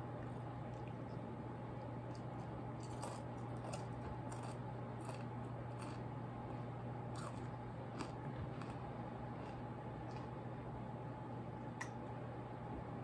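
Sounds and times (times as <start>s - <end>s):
steady low hum: 0.0s - 13.0s
cereal crunching while chewed: 2.1s - 6.1s, 7.1s - 10.4s.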